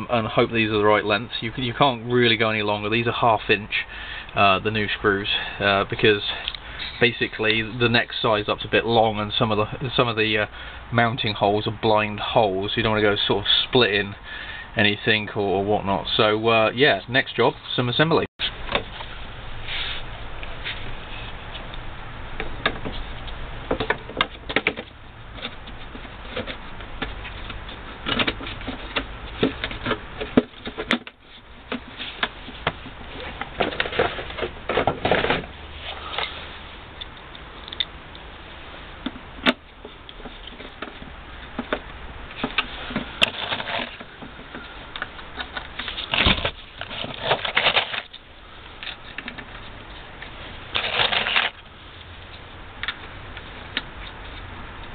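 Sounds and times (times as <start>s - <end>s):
plastic clicks knocks and scrapes: 22.4s - 35.5s.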